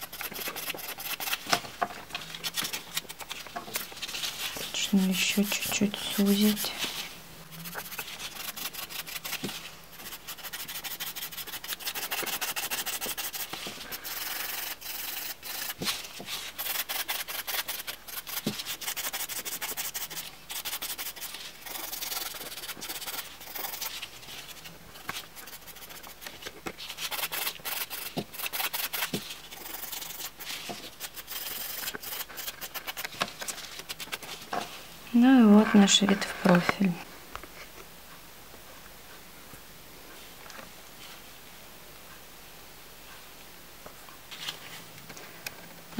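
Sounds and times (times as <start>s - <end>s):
nail file rasping: 0.0s - 1.4s, 7.7s - 15.9s, 16.5s - 24.0s, 25.4s - 26.2s, 27.0s - 33.1s.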